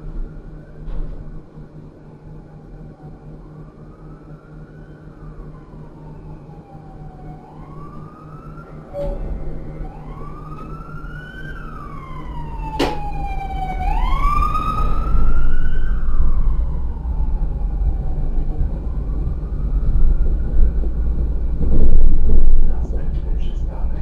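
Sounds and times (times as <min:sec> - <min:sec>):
tram electric drive whining: 0:00.0 - 0:24.0
wheels rumbling on rails: 0:05.0 - 0:24.0.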